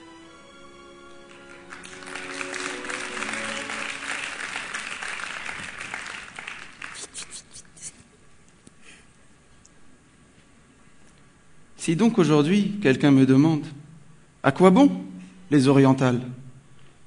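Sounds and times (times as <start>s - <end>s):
background music: 0.0s - 6.4s
audience applauding: 1.1s - 7.6s.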